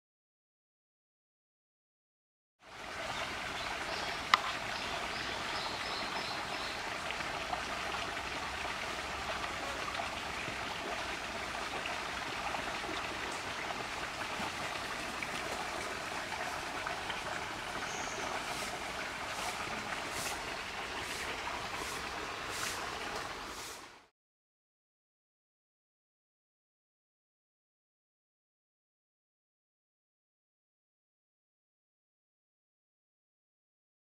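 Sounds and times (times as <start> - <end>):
water trickling: 2.7 - 24.0.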